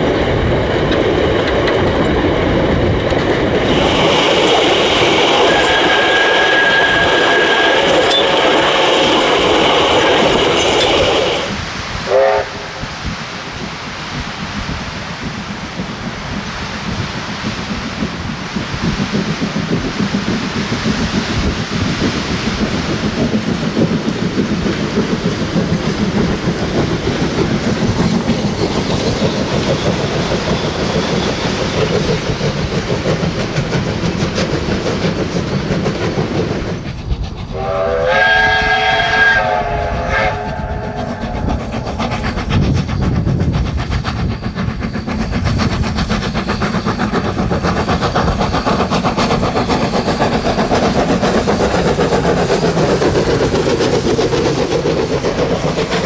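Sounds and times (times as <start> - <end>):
steam locomotive working hard: 0.0 - 56.0
steam whistle: 5.2 - 9.1, 9.9 - 12.8, 37.5 - 41.3.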